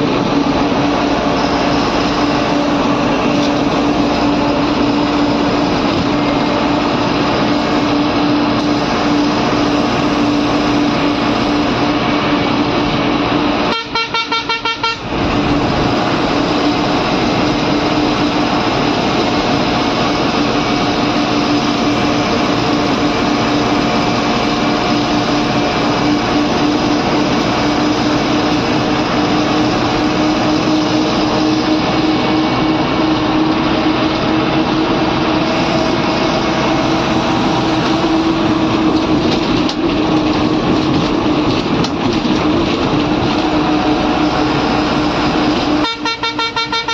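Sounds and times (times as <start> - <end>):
bus engine and road noise: 0.0 - 46.9
bus horn short toots: 13.6 - 15.2, 45.7 - 46.9.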